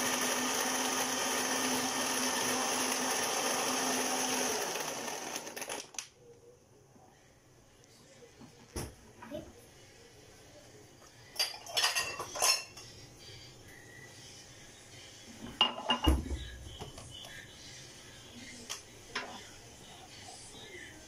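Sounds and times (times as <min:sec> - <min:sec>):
kitchenware clinking and knocking: 0:11.4 - 0:12.9, 0:15.4 - 0:17.0.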